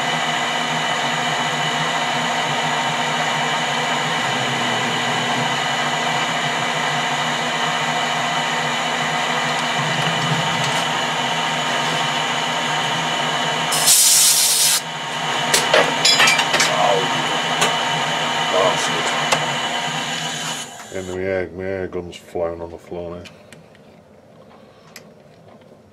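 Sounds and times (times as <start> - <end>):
metal lathe whining: 0.0 - 21.2
burst of hiss: 13.7 - 14.8.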